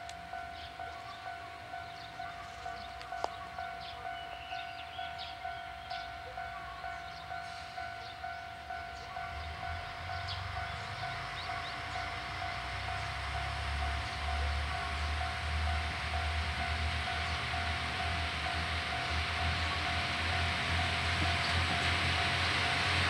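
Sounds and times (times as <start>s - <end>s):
diesel railcar engine rumble: 0.0s - 23.0s.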